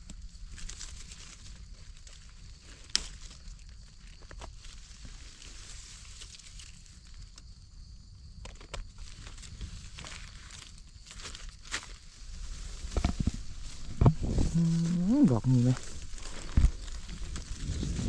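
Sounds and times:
leaves rustling and crackling: 0.0s - 7.6s, 8.8s - 18.0s
twigs snapping: 2.8s - 3.5s.

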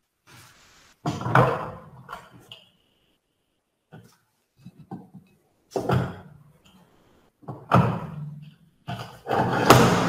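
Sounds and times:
dull thump through bench: 9.5s - 10.0s.

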